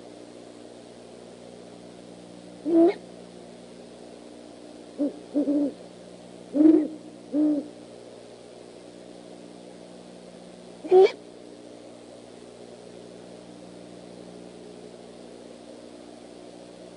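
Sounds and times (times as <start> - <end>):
owl hooting: 2.6 - 3.0, 5.0 - 5.8, 6.5 - 7.8, 10.8 - 11.2.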